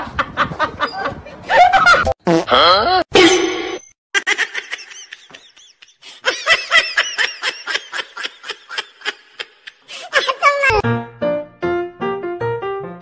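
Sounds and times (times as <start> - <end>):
person laughing: 0.2 - 3.0, 4.2 - 10.8.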